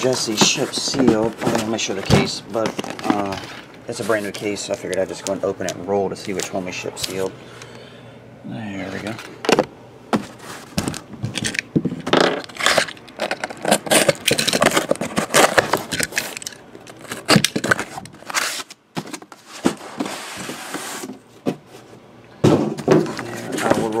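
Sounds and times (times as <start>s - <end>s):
cardboard boxes handled: 0.0s - 4.8s, 16.9s - 24.0s
packing tape tearing: 12.3s - 21.1s.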